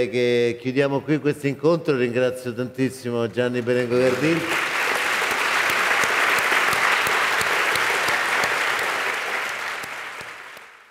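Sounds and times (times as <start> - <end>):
audience applauding: 3.6 - 10.9.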